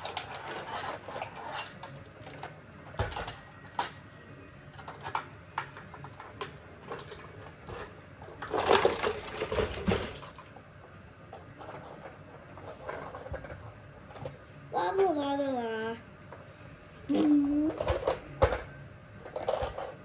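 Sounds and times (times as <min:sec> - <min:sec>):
toy car moved on rug: 0:00.0 - 0:02.4.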